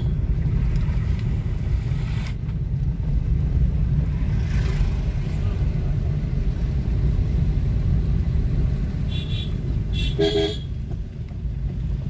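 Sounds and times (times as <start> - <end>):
vehicle horns honking: 0.0 - 0.2, 9.0 - 10.8
road and wind noise: 0.0 - 12.0.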